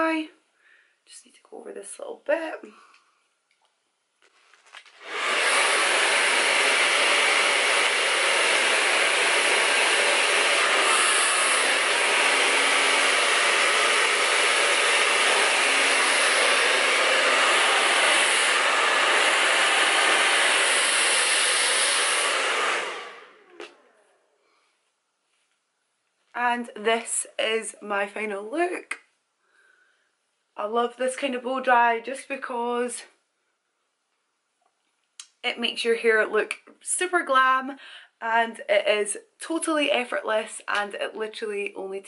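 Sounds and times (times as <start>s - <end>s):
hair dryer blowing: 4.9s - 24.2s.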